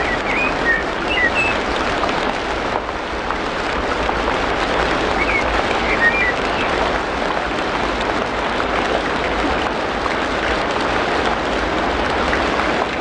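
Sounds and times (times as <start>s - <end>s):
bird chirp: 0.0s - 1.6s, 5.2s - 6.7s
dense rain falling: 0.0s - 13.0s.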